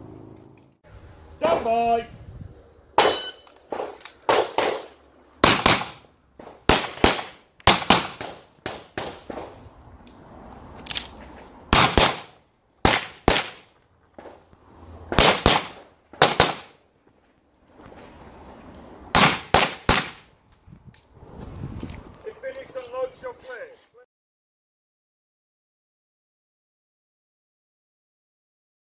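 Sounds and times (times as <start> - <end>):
pistol shots: 3.0 - 9.6, 11.7 - 14.4, 15.1 - 16.8, 19.1 - 20.3.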